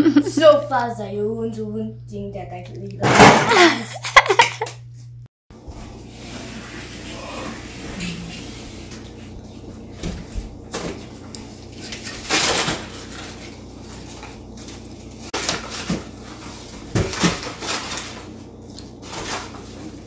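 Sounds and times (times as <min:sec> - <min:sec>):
cardboard and foil scraping and rustling: 0:10.7 - 0:20.0.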